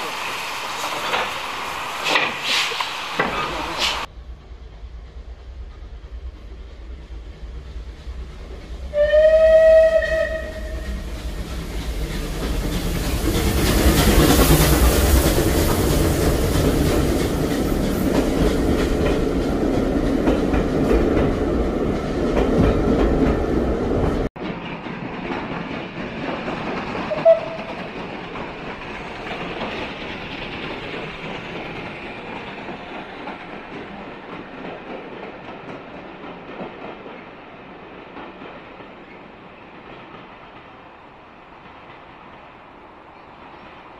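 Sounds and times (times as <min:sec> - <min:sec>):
train running on rails: 0:00.0 - 0:43.9
steam locomotive whistle: 0:08.9 - 0:11.0, 0:27.1 - 0:27.8.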